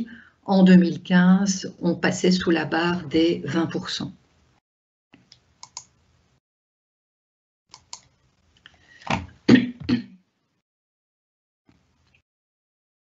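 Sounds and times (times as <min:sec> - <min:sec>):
computer mouse clicking: 0:05.2 - 0:06.0, 0:07.7 - 0:09.2.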